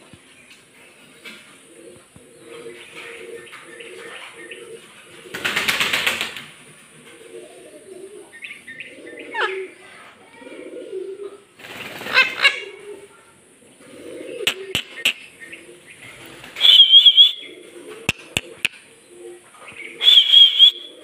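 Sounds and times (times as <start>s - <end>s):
sharp clicks: 18.1s - 18.8s.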